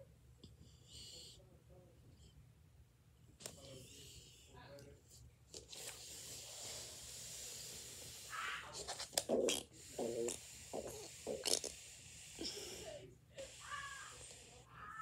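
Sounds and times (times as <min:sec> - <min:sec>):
child breathing: 0:09.9 - 0:15.0
child wordless vocal sounds: 0:12.4 - 0:15.0.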